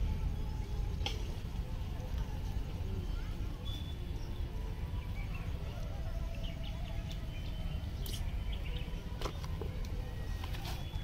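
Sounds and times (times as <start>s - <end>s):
small birds chirping: 0.0s - 11.0s
steady low rumble: 0.0s - 11.0s.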